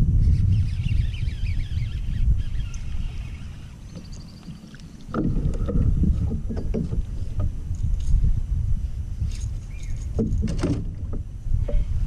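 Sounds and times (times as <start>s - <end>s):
wind buffeting microphone: 0.0s - 12.0s
water splashing: 3.3s - 7.4s
knocking against kayak: 5.1s - 7.5s.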